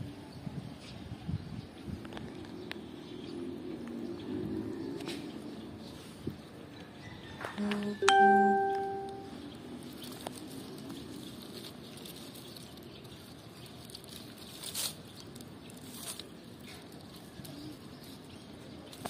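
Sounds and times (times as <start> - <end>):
faint outdoor background: 0.0 - 19.0
bell-like chime: 8.0 - 9.3.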